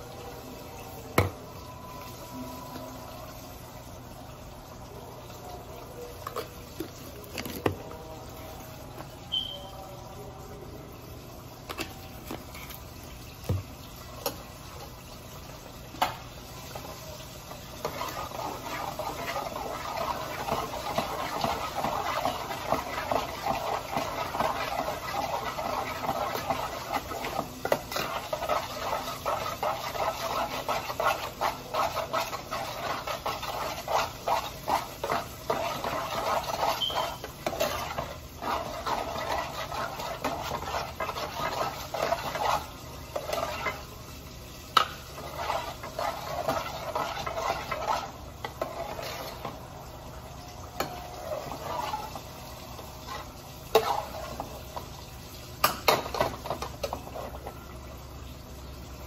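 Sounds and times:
cooking hiss: 0.0 - 59.0
metal spoon stirring in pot: 16.0 - 44.1, 44.7 - 49.8, 50.6 - 55.0, 55.6 - 57.6.

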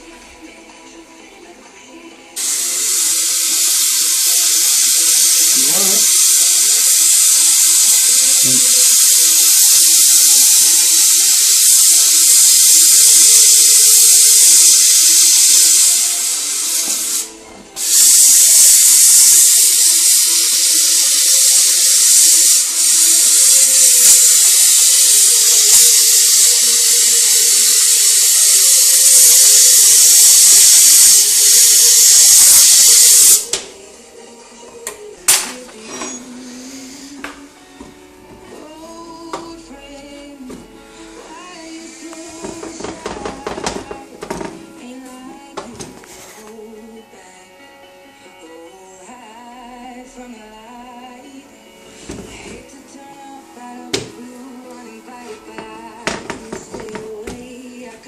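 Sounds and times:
gas torch flame hissing: 2.4 - 33.7, 35.2 - 37.5, 40.9 - 45.0, 53.5 - 57.8.

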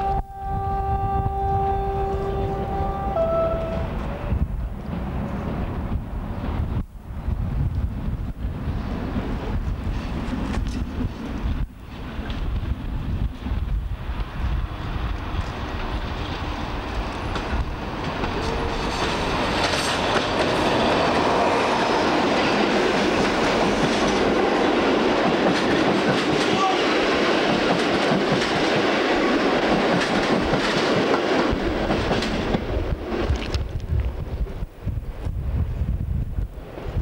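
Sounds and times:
train wheels clattering over joints: 27.3 - 28.9, 29.6 - 32.7.

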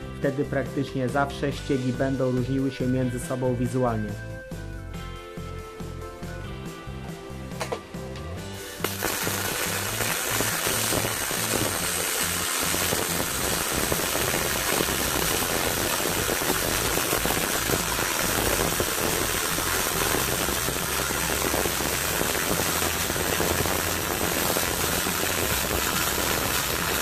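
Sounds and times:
welding arc crackling hiss: 7.5 - 27.0.

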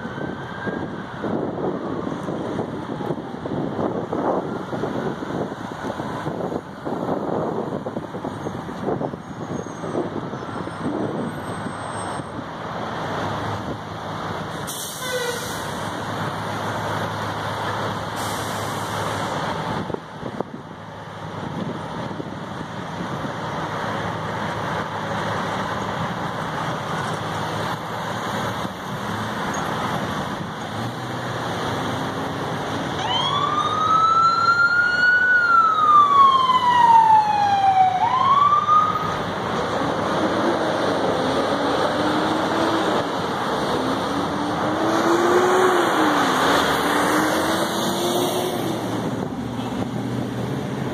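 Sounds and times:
emergency siren wailing: 0.0 - 8.1, 32.3 - 49.3
road traffic: 0.0 - 50.9.

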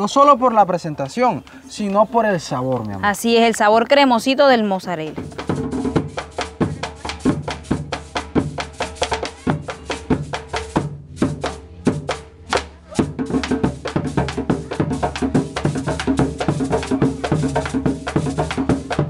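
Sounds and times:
music with quick percussion beat: 5.0 - 19.0.

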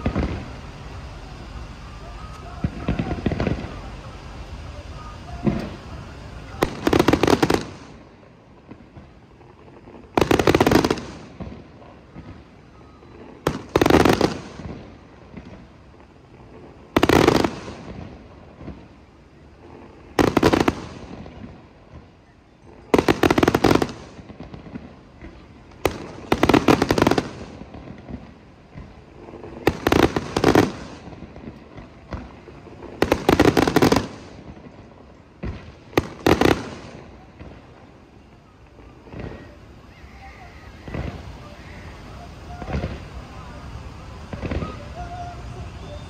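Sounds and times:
fireworks cracks and booms: 0.0 - 46.0.

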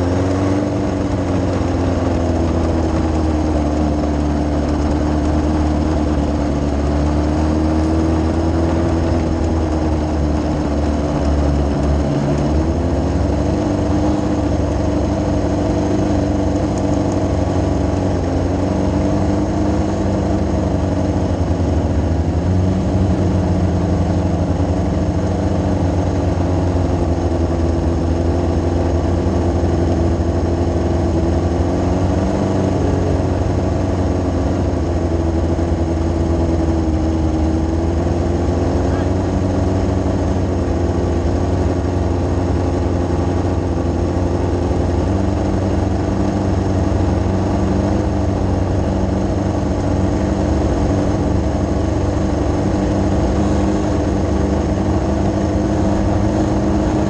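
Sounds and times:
motorcycle engine idling: 0.0 - 57.0.

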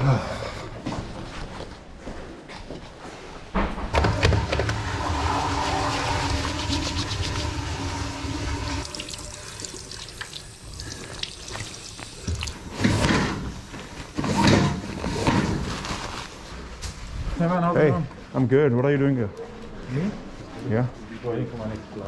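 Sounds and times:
water running from sink tap: 4.8 - 12.9.

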